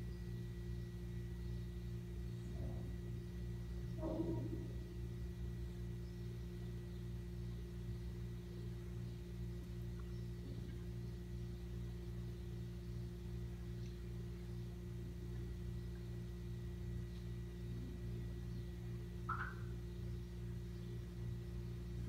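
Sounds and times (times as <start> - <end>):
steady low hum: 0.0 - 22.0
faint squeak: 4.0 - 4.8
thin high tone: 19.3 - 19.7.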